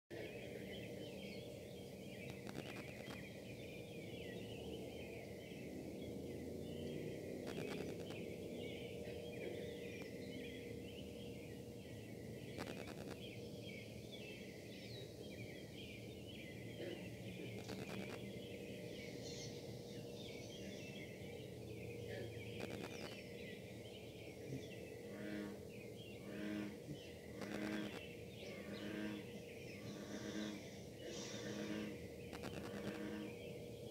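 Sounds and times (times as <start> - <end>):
wifi interference buzzing bursts: 2.2 - 3.2, 7.4 - 8.2, 12.6 - 13.2, 17.6 - 18.2, 22.6 - 23.2, 27.4 - 28.0, 31.2 - 33.3
industrial buzz with high tone: 2.2 - 3.3, 7.4 - 11.2, 12.4 - 13.3, 17.4 - 18.9, 22.4 - 23.2, 26.3 - 33.4.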